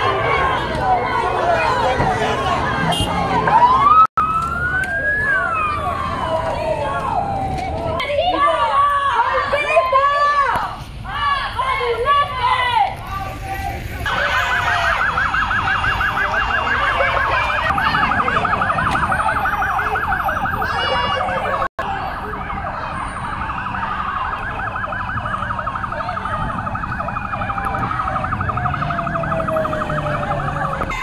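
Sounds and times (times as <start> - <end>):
police siren warbling: 1.6 - 8.0, 14.1 - 31.0.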